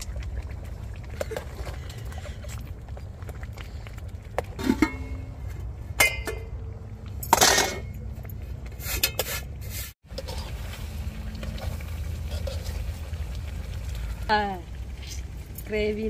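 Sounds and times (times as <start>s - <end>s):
metal spoon scraping a pot: 12.2s - 12.9s.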